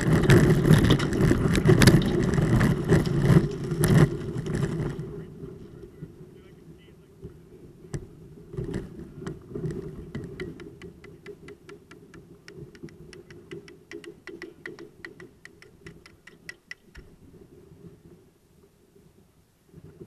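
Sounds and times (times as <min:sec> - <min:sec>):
ice cracking: 0:00.0 - 0:05.2
kayak grinding through ice: 0:00.0 - 0:06.4, 0:08.4 - 0:11.2.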